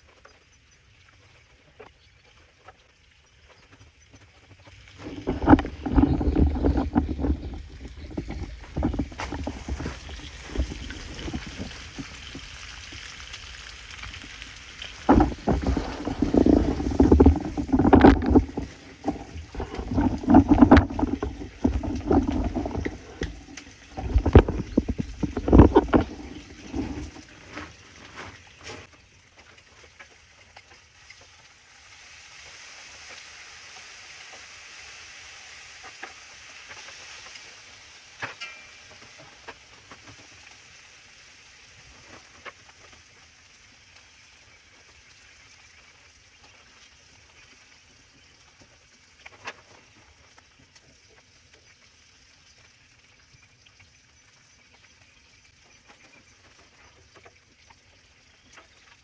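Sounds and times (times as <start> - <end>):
wind buffeting microphone: 5.0 - 13.0, 14.9 - 27.4
food sizzling on griddle: 30.0 - 49.3.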